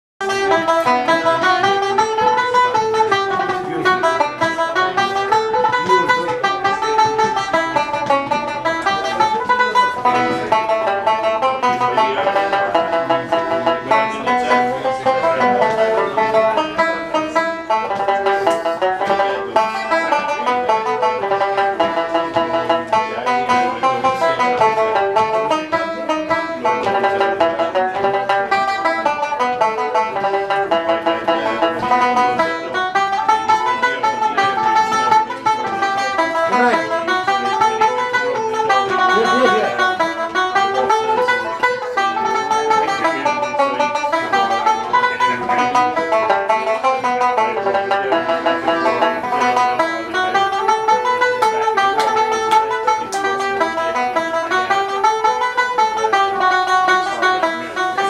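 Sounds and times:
banjo playing fast tune: 0.2s - 58.0s.

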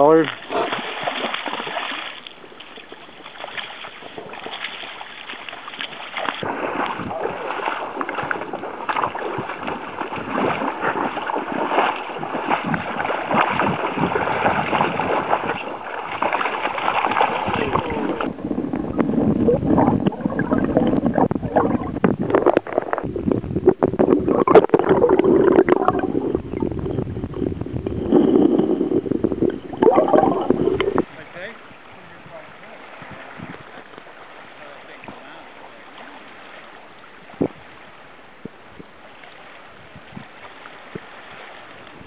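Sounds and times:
river water rushing: 0.0s - 18.3s
water sloshing and gurgling: 0.0s - 42.0s
wind buffeting microphone: 6.4s - 33.9s, 37.1s - 39.0s, 39.6s - 42.0s.

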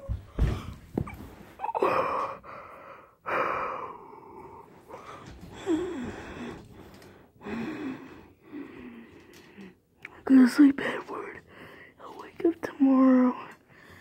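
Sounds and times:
person gasping and breathing: 0.3s - 9.8s.

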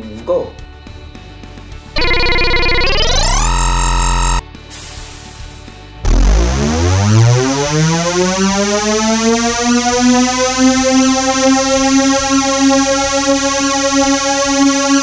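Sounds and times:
synthesized tone gliding up: 2.0s - 4.4s, 6.0s - 15.0s.

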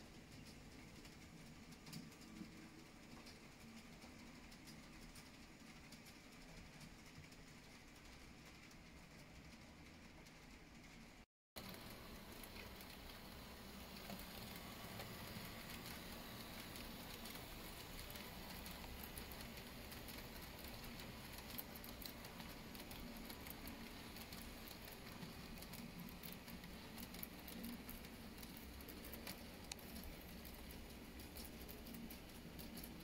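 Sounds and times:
model train wheels rattling: 11.6s - 33.0s.

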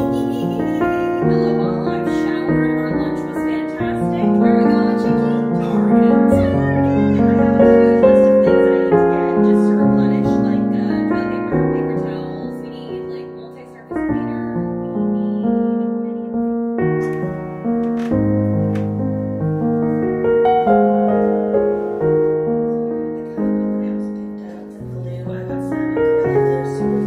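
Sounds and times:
soft piano music: 0.0s - 27.0s.

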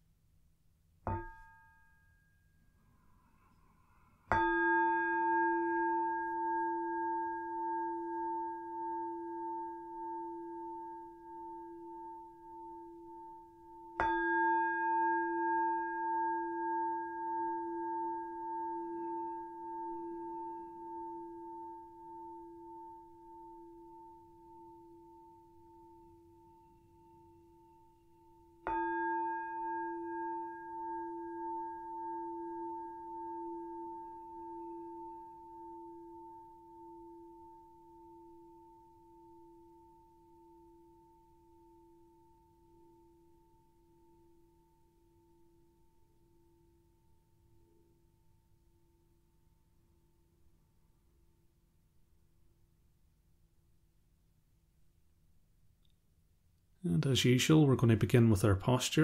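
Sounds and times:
meditation bell ringing: 4.3s - 42.6s.

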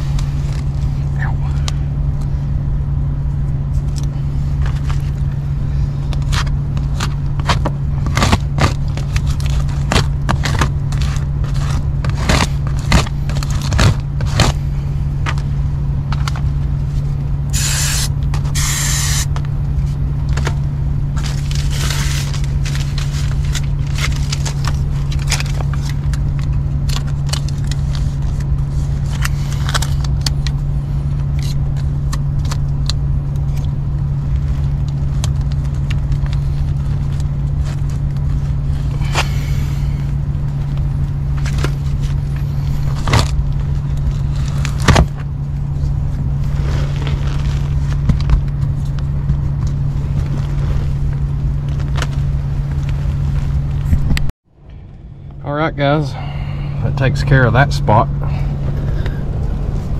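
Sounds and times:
air handler humming: 0.0s - 59.9s
foil duct crinkling and scraping: 3.7s - 54.0s
short bursts of hiss: 17.6s - 19.3s.

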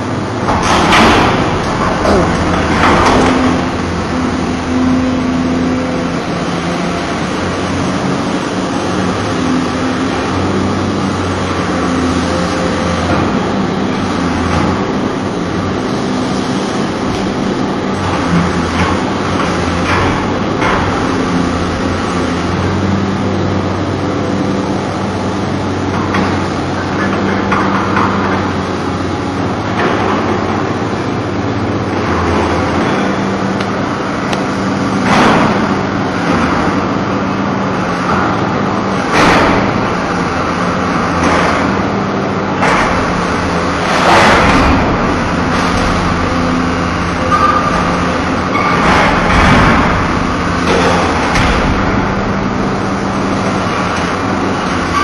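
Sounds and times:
excavator diesel engine humming: 0.0s - 55.0s
louder bursts of machine noise: 39.0s - 55.0s.

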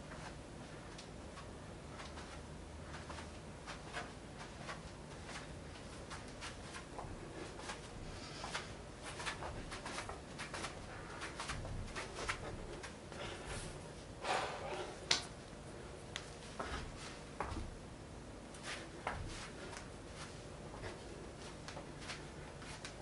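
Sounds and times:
sock footsteps on rug: 16.2s - 17.8s.

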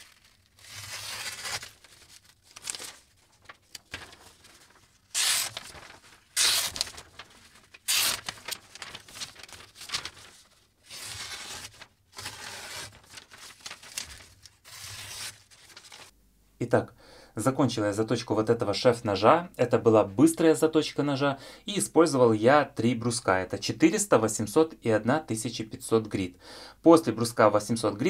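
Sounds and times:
knife slicing paper: 0.0s - 16.1s
paper rustling: 0.0s - 16.1s.

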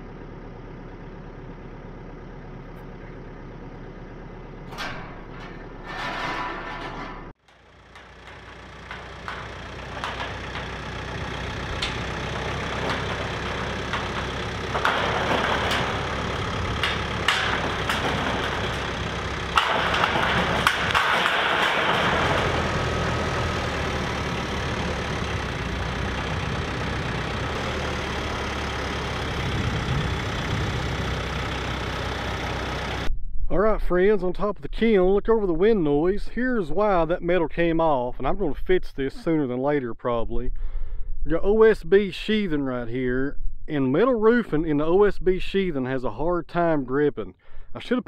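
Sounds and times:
tractor diesel engine running: 0.0s - 33.1s.

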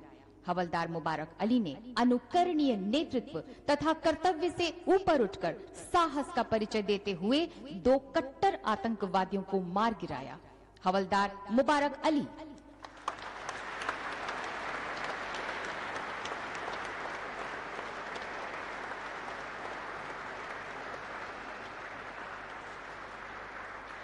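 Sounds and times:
audience applauding: 12.8s - 24.0s.

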